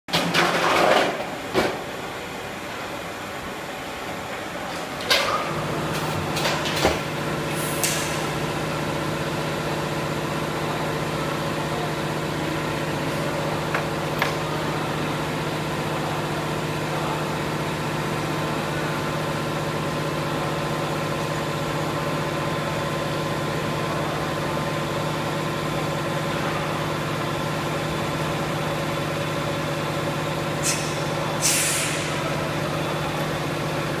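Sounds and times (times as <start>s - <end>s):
short hisses: 30.6s - 32.2s.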